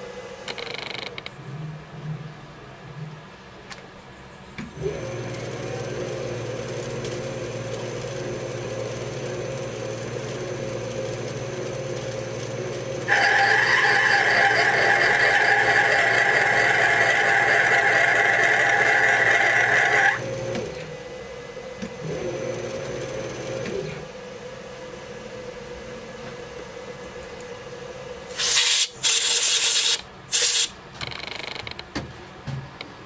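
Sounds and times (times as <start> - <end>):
metal lathe whining: 4.8 - 20.8
short loud hissing bursts: 28.3 - 30.8.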